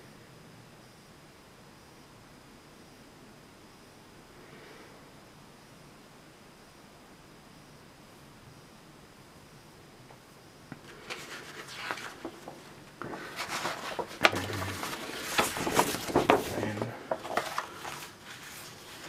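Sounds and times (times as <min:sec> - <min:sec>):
paper crackles and taps: 0:10.7 - 0:19.0
paper rustling and crinkling: 0:10.8 - 0:19.0.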